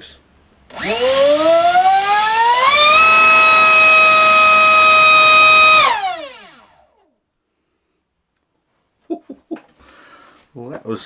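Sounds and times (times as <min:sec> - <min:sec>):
electric motor spinning propeller whine: 0:00.7 - 0:07.1.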